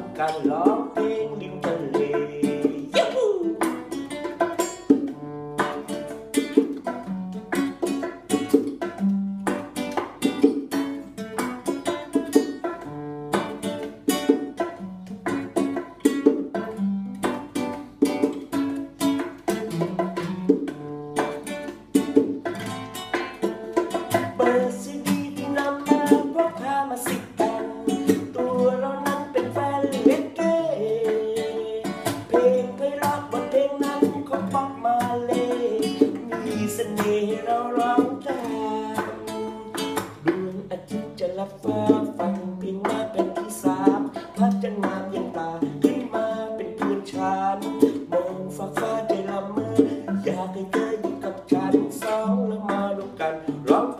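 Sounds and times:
man singing: 0:00.0 - 0:04.2, 0:19.4 - 0:20.2, 0:23.9 - 0:53.9
bongo drums: 0:00.0 - 0:53.9
strummed acoustic guitar: 0:00.0 - 0:53.9.

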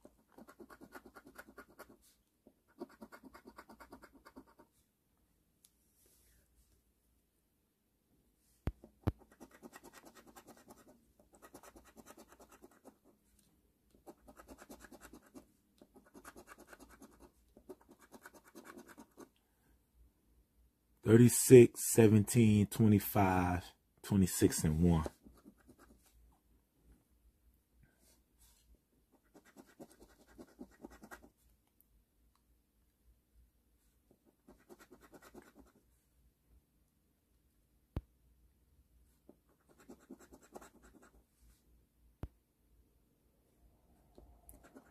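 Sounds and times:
scratching lottery ticket: 0:00.0 - 0:04.7, 0:09.2 - 0:13.2, 0:14.0 - 0:19.3, 0:29.2 - 0:31.3, 0:34.3 - 0:35.8, 0:39.5 - 0:41.2, 0:44.5 - 0:44.9
lottery ticket being scratched: 0:16.0 - 0:19.2.

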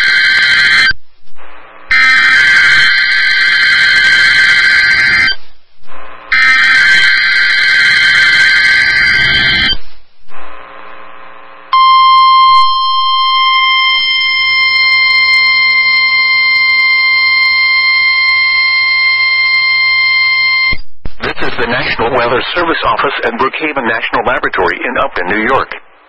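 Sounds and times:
harsh digital data screech: 0:00.0 - 0:00.9, 0:01.8 - 0:05.4, 0:06.1 - 0:09.8, 0:12.0 - 0:23.4
steady high alarm beep: 0:00.0 - 0:01.0, 0:01.9 - 0:05.4, 0:06.3 - 0:09.9, 0:11.7 - 0:20.8.

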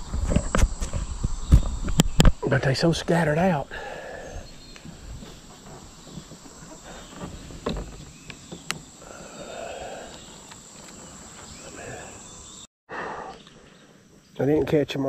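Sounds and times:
insects buzzing: 0:00.0 - 0:15.0.

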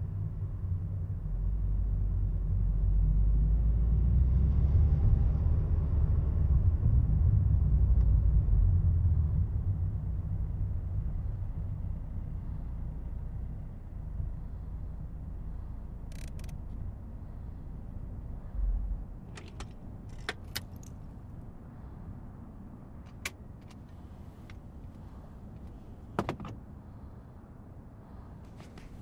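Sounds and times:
car engine rumble inside cabin: 0:00.0 - 0:27.2, 0:28.1 - 0:29.0
clicks and rattles: 0:19.3 - 0:21.0.

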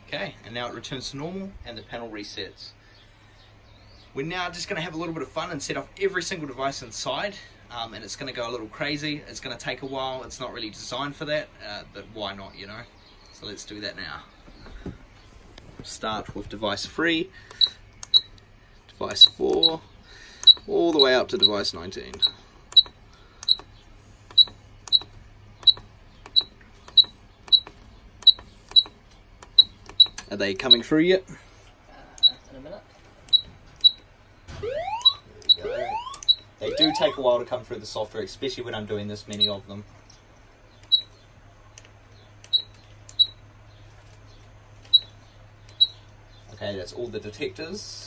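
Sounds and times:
low steady hum: 0:00.0 - 0:48.0
high-pitched chirps: 0:34.6 - 0:37.2.

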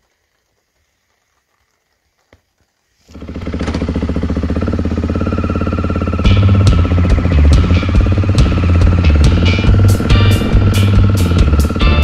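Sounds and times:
motorcycle engine idling: 0:03.1 - 0:12.0.

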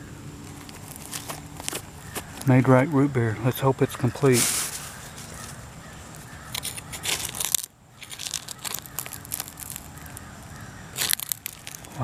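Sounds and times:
metal tool scraping through dirt: 0:04.3 - 0:05.5, 0:06.5 - 0:10.0.

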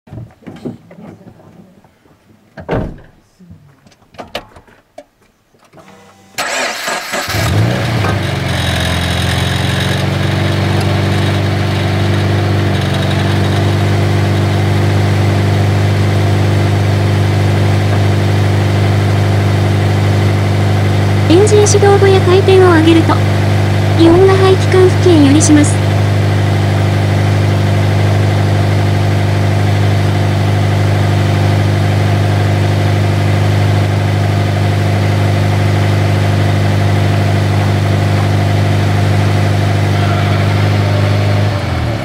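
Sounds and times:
car engine starting: 0:05.8 - 0:42.0
car engine idling: 0:06.4 - 0:42.0
high-pitched exhaust creaking: 0:08.2 - 0:14.6.

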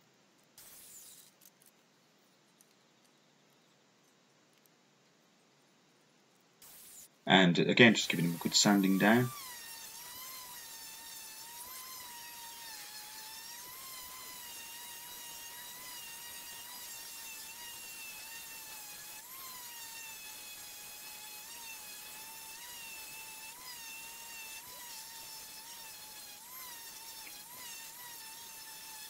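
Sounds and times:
orbital sander whining: 0:06.6 - 0:29.0.

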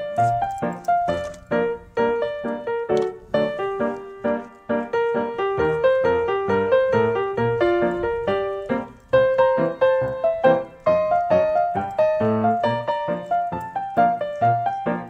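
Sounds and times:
piano melody: 0:00.0 - 0:15.0.

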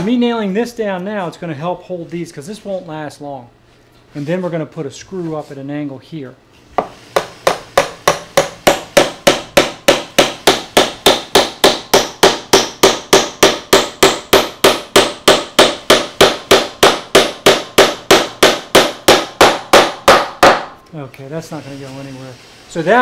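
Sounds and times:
hammer striking nail into wood: 0:06.8 - 0:20.8.

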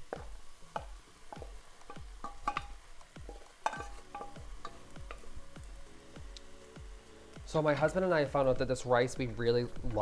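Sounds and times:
utensil stirring rice in pan: 0:00.0 - 0:08.5
light sizzle: 0:00.0 - 0:10.0
utensil clinking on pan: 0:01.3 - 0:04.8.

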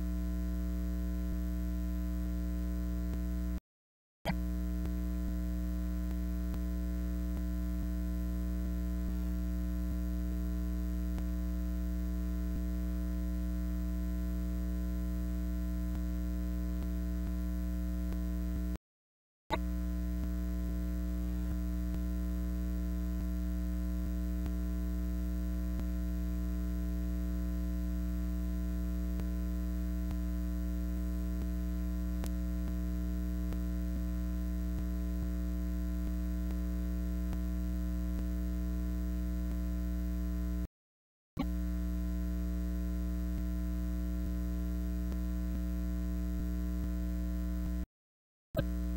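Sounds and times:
electrical mains hum: 0:19.5 - 0:40.6.

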